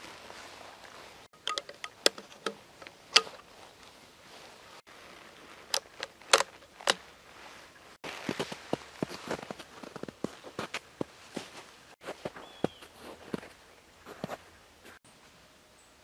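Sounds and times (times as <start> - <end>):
footsteps crunching in snow: 0.0 - 1.4, 2.7 - 15.0
rifle bolt metallic clicks: 1.4 - 3.4.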